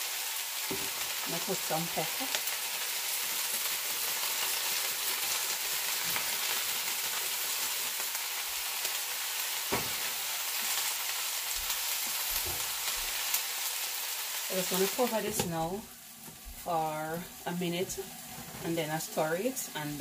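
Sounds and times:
vegetables sizzling in oil: 0.0 - 20.0.

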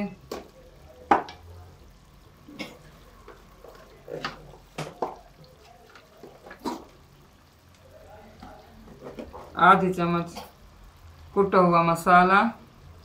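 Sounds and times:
sauce frying in a pan: 0.0 - 13.0
spoons tapping a pan: 0.1 - 1.5, 3.2 - 6.9.

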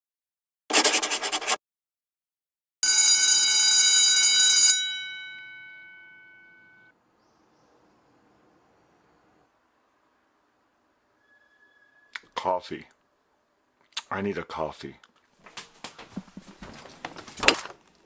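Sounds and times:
alarm bell ringing: 2.8 - 6.9.

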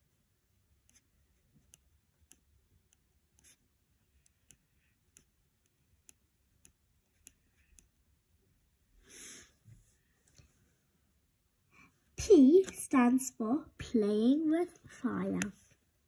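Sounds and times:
pen writing on paper: 0.8 - 1.0, 3.4 - 7.9.

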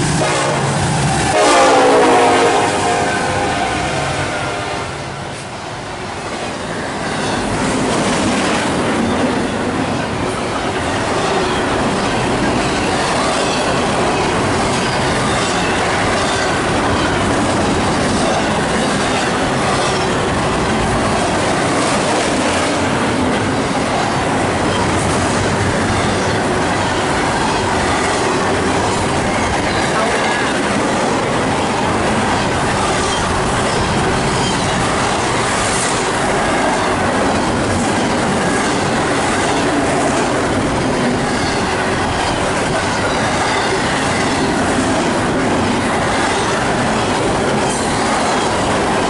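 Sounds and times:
train wheels rolling on rails: 0.0 - 49.0.

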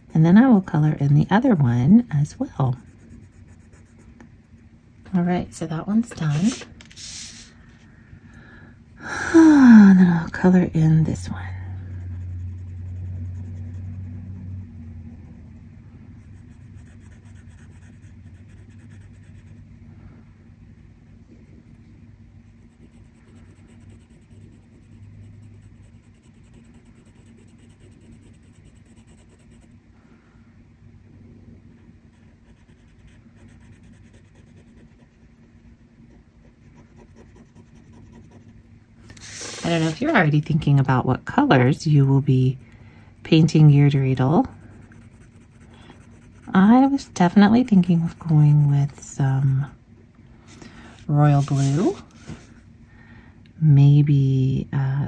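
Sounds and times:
steady low hum: 0.0 - 55.0
marker scratching on paper: 5.9 - 7.5, 12.0 - 19.6, 32.2 - 40.3, 43.3 - 49.7, 51.1 - 52.4
marker rubbing on paper: 6.0 - 7.5, 36.5 - 40.3, 51.1 - 52.4.

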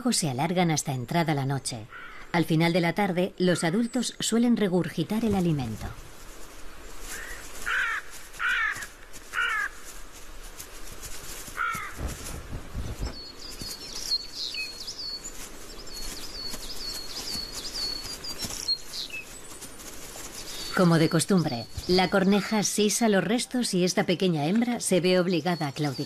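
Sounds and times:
crow cawing: 1.9 - 2.3, 7.1 - 9.9, 11.6 - 12.0
small bird chirping: 11.6 - 23.3.

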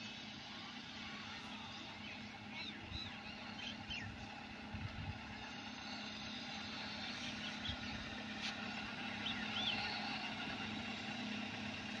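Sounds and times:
car engine running at low speed: 0.0 - 12.0
bird chirps: 1.9 - 4.2, 9.2 - 10.2.

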